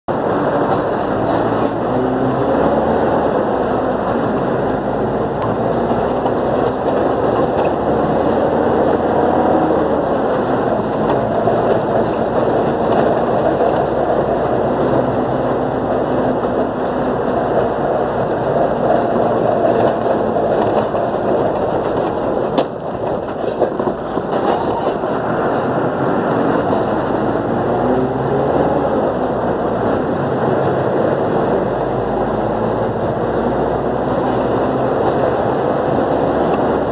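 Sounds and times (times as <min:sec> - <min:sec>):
bus engine drone: 0:00.0 - 0:36.9
road noise: 0:00.0 - 0:36.9
bus body rattle: 0:00.1 - 0:27.6.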